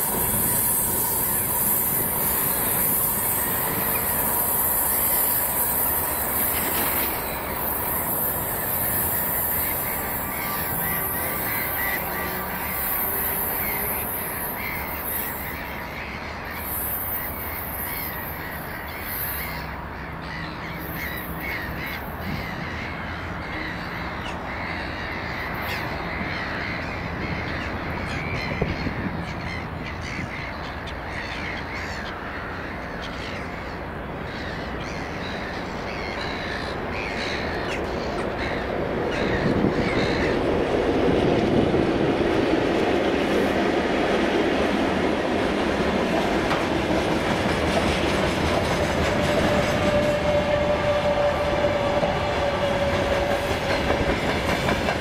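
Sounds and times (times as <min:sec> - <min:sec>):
electric train rolling on track: 0:00.0 - 0:55.0
crows cawing: 0:28.6 - 0:40.5.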